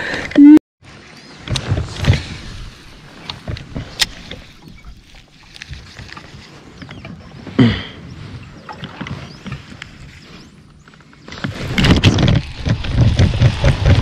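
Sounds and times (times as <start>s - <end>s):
thump in kayak: 1.4s - 2.6s.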